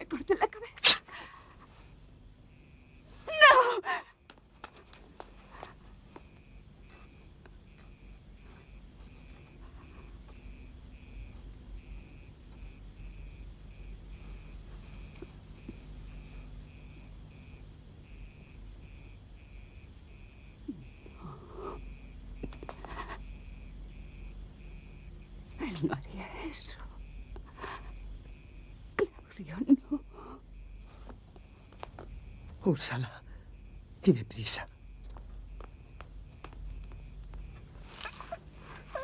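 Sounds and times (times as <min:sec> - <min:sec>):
cricket chirping: 0:00.0 - 0:39.0
woman sobbing: 0:03.3 - 0:04.2, 0:20.7 - 0:23.3, 0:27.5 - 0:28.0, 0:29.6 - 0:30.4, 0:38.1 - 0:39.0.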